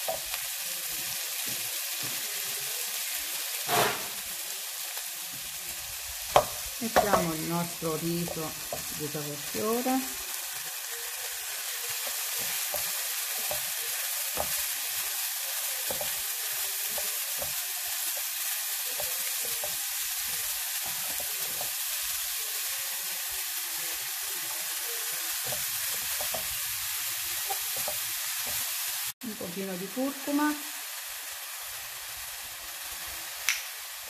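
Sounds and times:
vegetables sizzling in a frying pan: 0.0 - 34.0.

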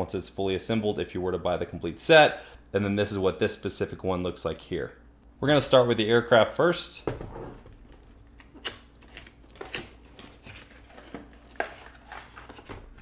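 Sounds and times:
cardboard and plastic crinkling: 7.7 - 13.0.

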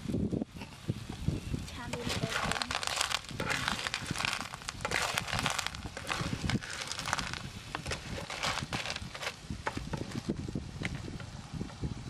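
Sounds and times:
shellfish sizzling in a frying pan: 1.0 - 10.4.

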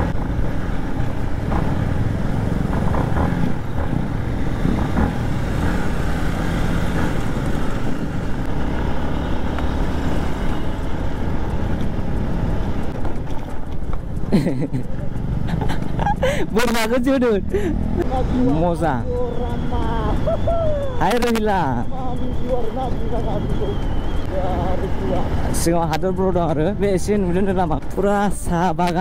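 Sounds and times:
wind rumble on microphone: 0.0 - 8.7
motorcycle engine running: 0.0 - 28.2.

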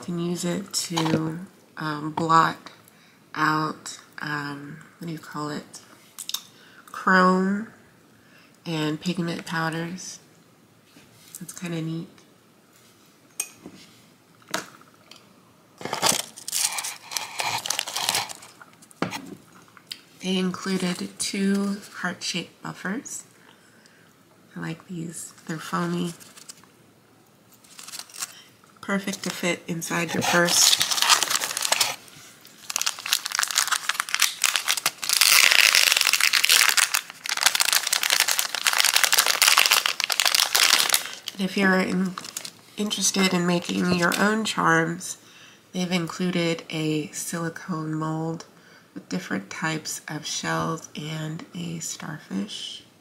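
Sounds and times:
packaging crinkling: 15.8 - 18.6, 27.5 - 28.5, 29.2 - 42.7.

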